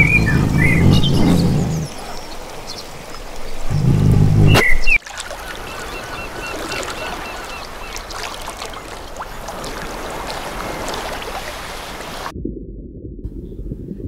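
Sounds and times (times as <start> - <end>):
water splashing in a pool: 0.0 - 3.7, 4.4 - 12.3
bird chirping: 0.0 - 8.1.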